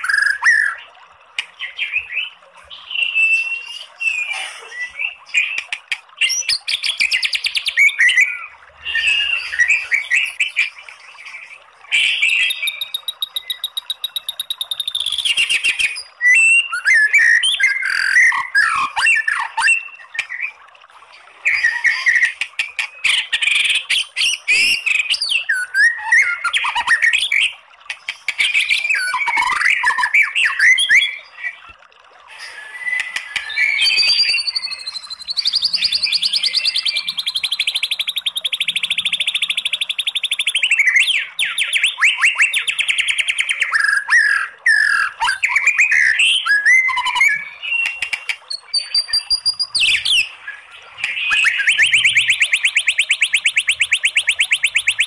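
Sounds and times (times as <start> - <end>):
bird singing: 1.6 - 20.6, 32.4 - 55.0.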